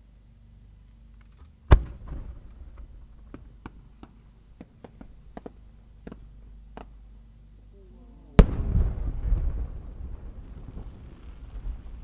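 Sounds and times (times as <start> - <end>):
small sharp firework pops: 1.3 - 7.0
firework mortar bang: 1.7 - 3.8, 8.4 - 12.0.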